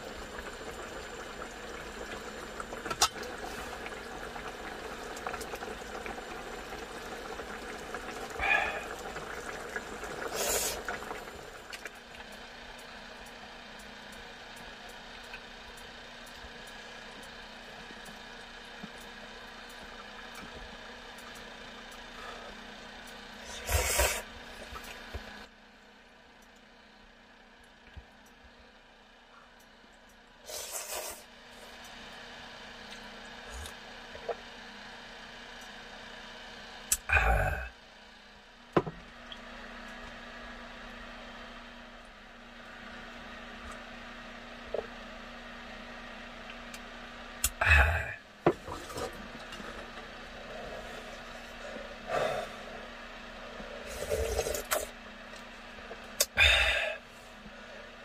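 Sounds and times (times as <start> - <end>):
gas stove hissing: 0.0 - 11.7, 20.8 - 25.5, 30.4 - 31.8, 46.7 - 58.0
soup bubbling: 0.0 - 12.3
machine-like hum: 0.0 - 58.0.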